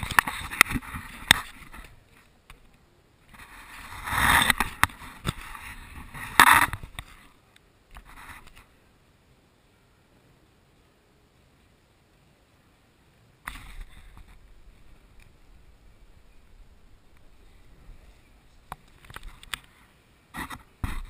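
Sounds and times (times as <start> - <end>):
camera scraping on floor: 3.3 - 7.4.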